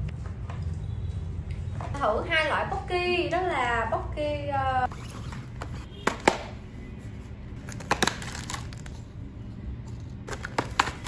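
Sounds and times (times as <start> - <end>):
packaging clicks and crinkles: 7.6 - 9.0, 10.1 - 11.0.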